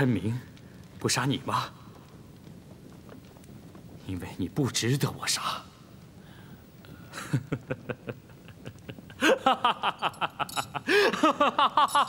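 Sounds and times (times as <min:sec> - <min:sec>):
man laughing: 0:07.1 - 0:12.0.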